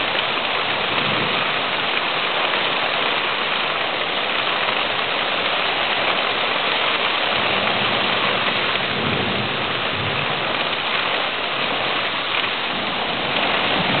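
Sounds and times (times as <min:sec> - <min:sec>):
heavy rain pouring: 0:00.0 - 0:14.0
low thunder rumble: 0:12.7 - 0:14.0.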